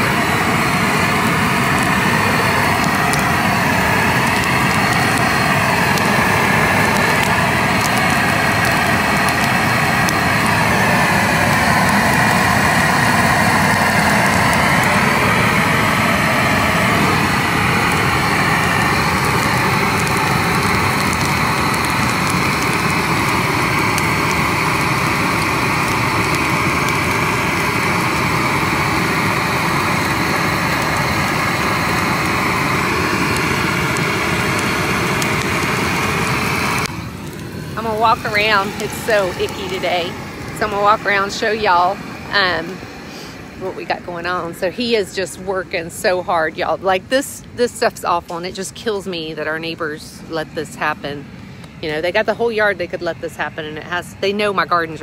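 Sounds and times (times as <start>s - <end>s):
torch flame rushing: 0.0s - 55.0s.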